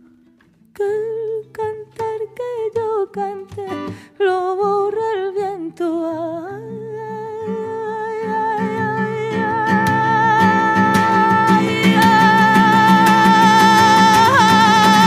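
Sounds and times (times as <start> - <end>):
plucked guitar: 0.0 - 15.0.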